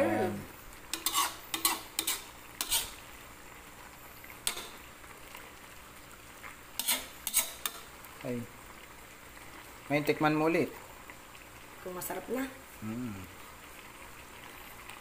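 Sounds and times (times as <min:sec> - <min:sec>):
metal ladle scraping a pan: 0:00.9 - 0:03.1, 0:04.4 - 0:04.8, 0:06.8 - 0:07.9.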